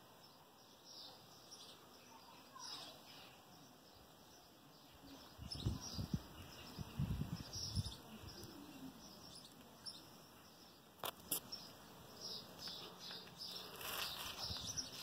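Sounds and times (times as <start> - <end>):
birds chirping: 0.0 - 15.0
low rumbling microphone noise: 5.3 - 9.0.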